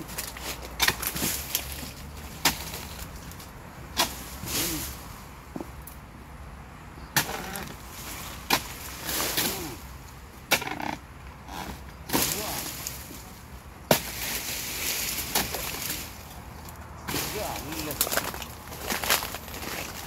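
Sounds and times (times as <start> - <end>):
chisel chopping palm fronds: 0.0 - 5.7, 7.1 - 9.8, 10.4 - 11.0, 11.6 - 16.2, 17.0 - 20.0
frond rustling: 0.0 - 5.8, 7.2 - 10.2, 11.6 - 20.0.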